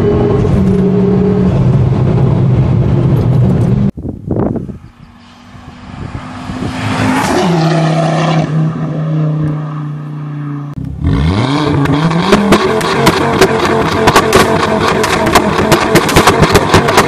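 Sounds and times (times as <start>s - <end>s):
car engine accelerating: 5.0s - 17.0s
engine revving: 5.2s - 17.0s
sharp exhaust cracks: 11.7s - 17.0s.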